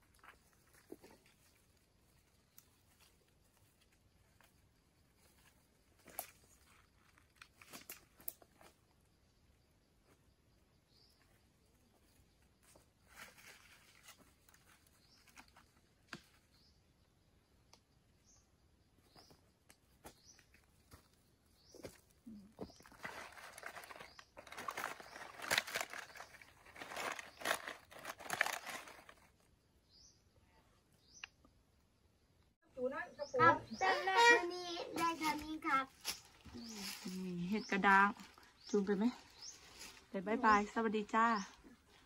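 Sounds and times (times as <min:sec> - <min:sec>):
faint bird chirps: 0:08.9 - 0:42.0
dried mushrooms crunching in plastic bag: 0:22.8 - 0:29.3.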